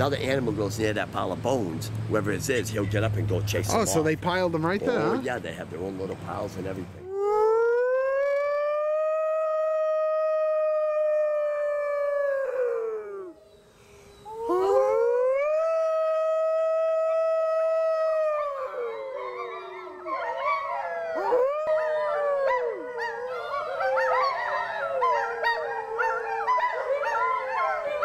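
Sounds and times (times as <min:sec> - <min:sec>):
wolves howling: 0:07.0 - 0:28.0.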